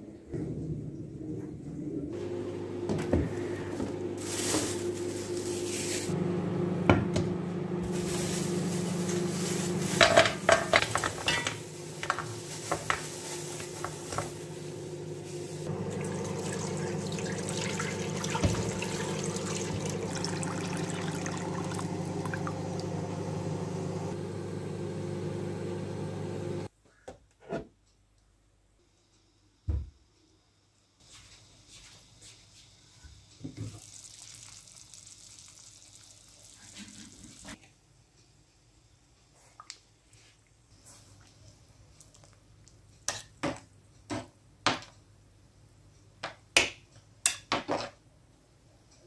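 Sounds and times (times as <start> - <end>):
clatter of containers and cookware: 9.9 - 14.3, 47.3 - 48.0
water pouring into a pot: 15.6 - 23.0, 33.7 - 37.6.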